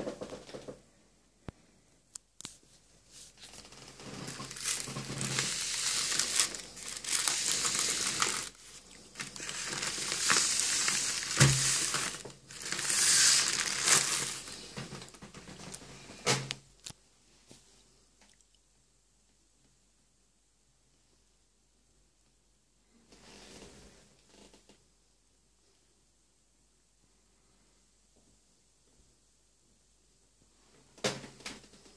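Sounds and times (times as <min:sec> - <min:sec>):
plastic wrapping crinkling: 0:03.3 - 0:15.8.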